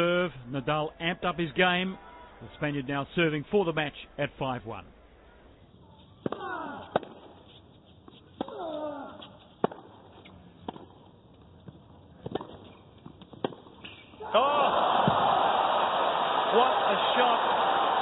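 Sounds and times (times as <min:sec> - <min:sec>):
racket hitting tennis ball: 0:06.2 - 0:11.0, 0:12.2 - 0:14.0.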